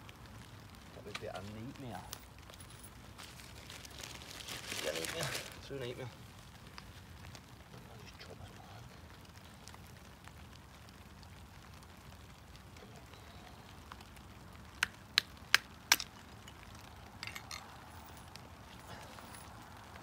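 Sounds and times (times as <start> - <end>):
knife chopping wood on rock: 14.8 - 16.1.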